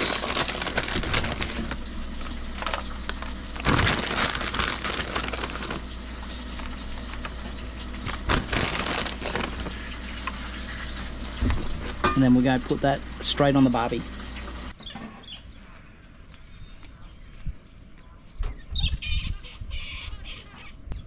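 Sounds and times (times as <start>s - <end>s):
cheese rustling and crackling: 0.0s - 10.9s
low steady hum: 0.0s - 21.0s.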